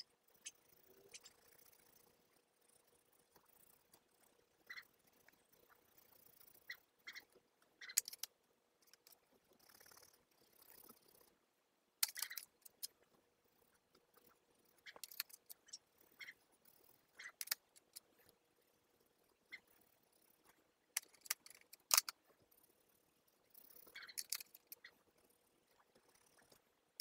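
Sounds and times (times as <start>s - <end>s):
faint clicks: 12.0s - 18.4s, 19.4s - 22.7s, 23.5s - 27.0s.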